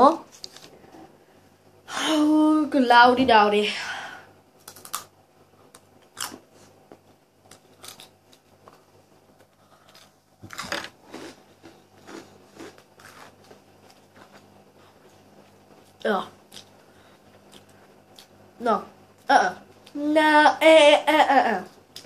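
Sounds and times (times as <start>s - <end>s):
breadstick crunching: 7.4s - 8.8s, 9.8s - 14.5s.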